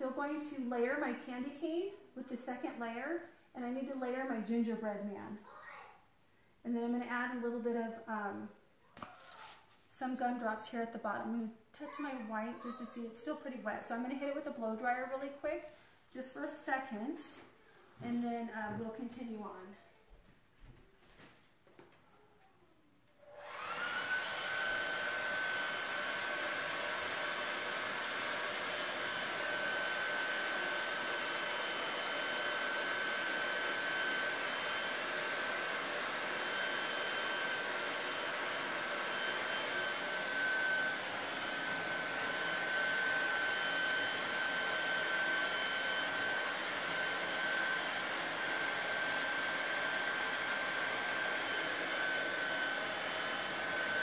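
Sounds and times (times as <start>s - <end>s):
hair dryer running: 23.2s - 54.0s.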